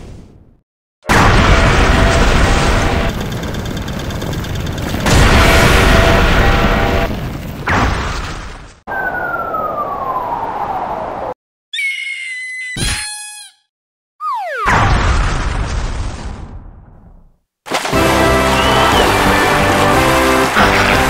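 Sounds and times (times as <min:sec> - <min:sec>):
descending whistle: 0:08.9 - 0:11.1, 0:18.5 - 0:19.2.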